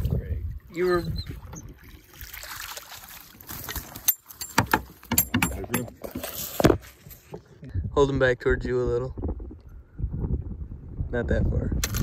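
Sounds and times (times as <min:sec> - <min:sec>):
water sloshing and splashing: 0:00.0 - 0:07.6.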